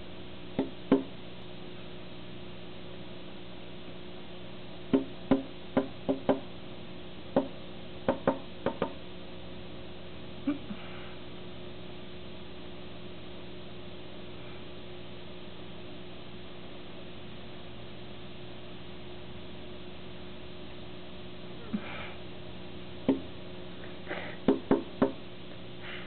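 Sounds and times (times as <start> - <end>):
bird knocking on glass: 8.1 - 9.0.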